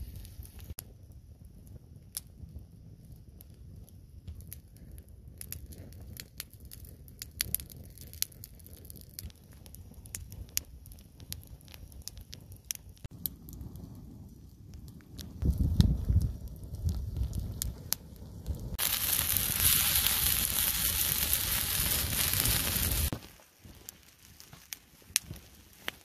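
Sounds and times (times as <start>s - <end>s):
low fire rumble: 0.0s - 26.0s
wood fire crackling and popping: 0.0s - 26.0s.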